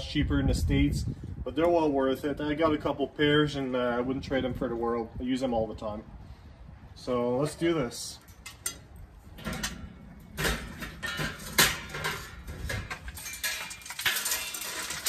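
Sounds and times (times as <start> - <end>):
hot coals clinking: 8.0 - 15.0
metal chimney starter clanking: 8.2 - 15.0.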